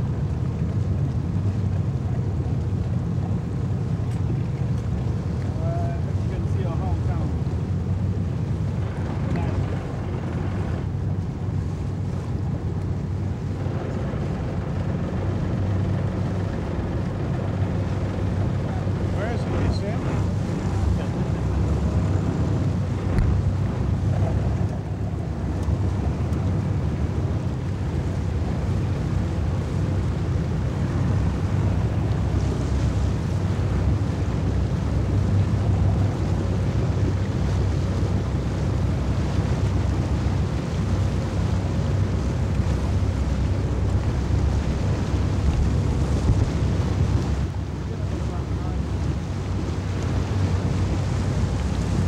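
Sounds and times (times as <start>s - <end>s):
motorboat engines rumbling: 0.0s - 52.0s
water rushing past hull: 0.0s - 52.0s
wind buffeting microphone: 0.0s - 52.0s.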